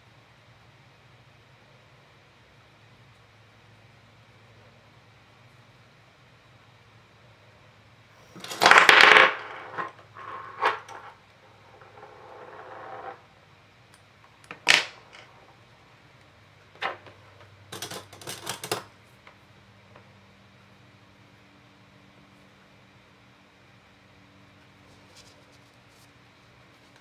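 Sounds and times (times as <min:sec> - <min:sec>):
metal tools clicking and tapping: 0:17.7 - 0:18.9.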